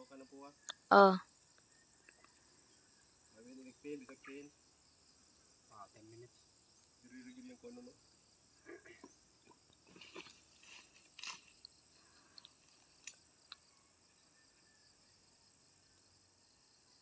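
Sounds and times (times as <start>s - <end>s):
footsteps in grass: 9.9s - 11.7s.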